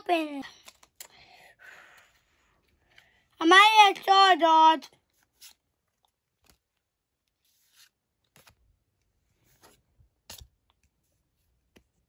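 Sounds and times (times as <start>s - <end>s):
cards sliding and flicking: 0.5s - 1.2s, 5.1s - 12.0s.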